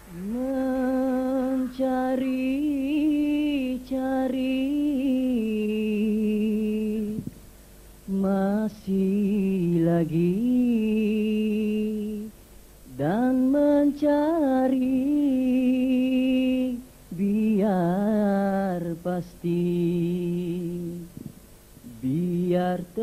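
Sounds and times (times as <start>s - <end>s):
man singing ornamented phrases: 0.0s - 7.2s.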